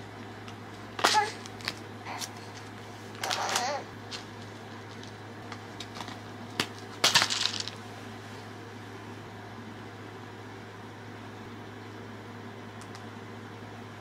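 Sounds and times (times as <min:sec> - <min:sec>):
crisps rattling in canister: 0:03.2 - 0:05.2, 0:05.8 - 0:07.8
click: 0:12.8 - 0:13.0.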